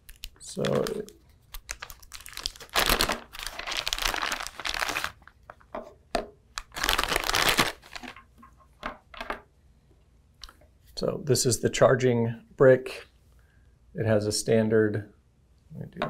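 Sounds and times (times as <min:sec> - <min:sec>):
plastic bag crinkling: 0:00.0 - 0:05.6, 0:06.6 - 0:08.2.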